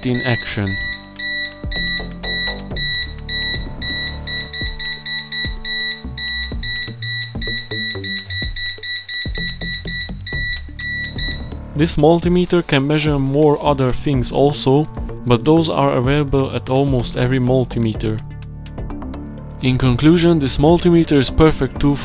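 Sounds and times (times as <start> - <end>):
voltage detector beeping rapidly: 0.0 - 11.6
background music with a beat: 0.0 - 22.0.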